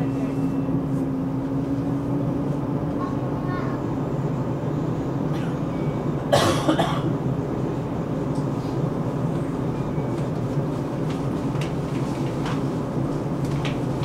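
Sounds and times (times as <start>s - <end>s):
metro train rumbling: 0.0s - 14.0s
person coughing: 6.3s - 7.1s.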